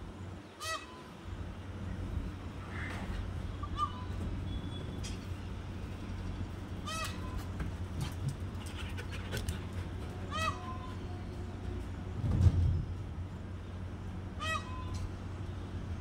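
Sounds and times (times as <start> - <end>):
honk-like animal call: 0.6 - 1.1, 2.7 - 4.2, 6.8 - 7.5, 10.3 - 11.1, 14.4 - 15.1.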